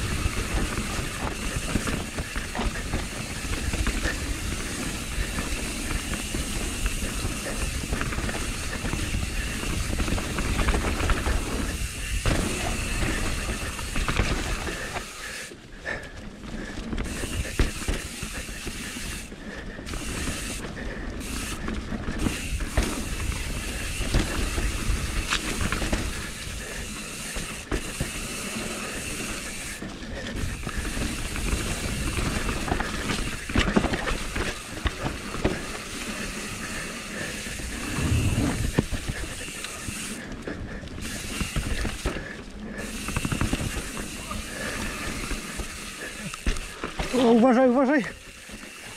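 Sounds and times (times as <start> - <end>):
bike rattling and clicking: 0.0 - 48.9
tyres over dirt and roots: 0.0 - 48.9
wind on microphone: 37.8 - 39.0.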